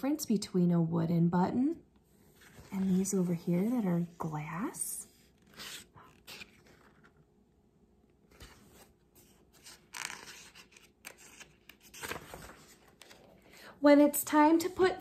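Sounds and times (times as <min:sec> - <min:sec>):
paper pages rustling: 0:02.2 - 0:03.8, 0:05.2 - 0:07.3, 0:08.2 - 0:13.5.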